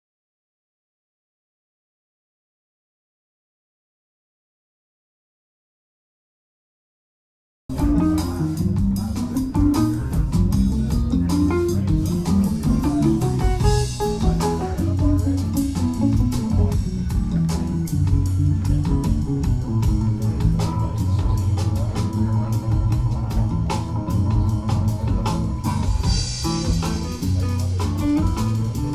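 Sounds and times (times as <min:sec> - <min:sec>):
band music from a vinyl record: 0:07.7 - 0:28.9
bass line: 0:07.7 - 0:28.9
drums with cymbals: 0:07.7 - 0:28.9
guitar: 0:07.7 - 0:28.9.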